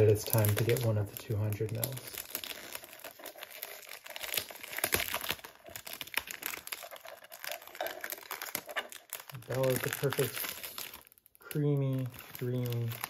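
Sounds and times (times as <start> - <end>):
plastic film crinkling: 0.0 - 13.0
plastic tearing: 0.0 - 13.0.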